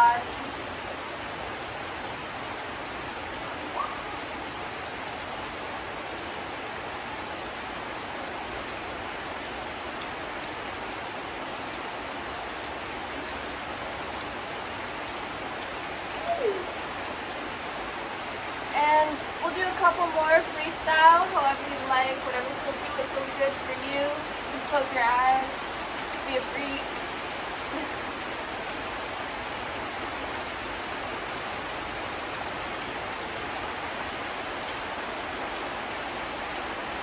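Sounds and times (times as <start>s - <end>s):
steady rain: 0.0s - 37.0s
short falling cry: 16.2s - 16.8s.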